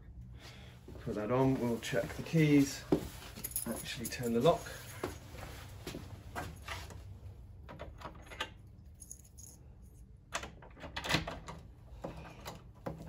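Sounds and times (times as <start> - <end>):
door latch clicking and rattling: 10.3 - 11.7.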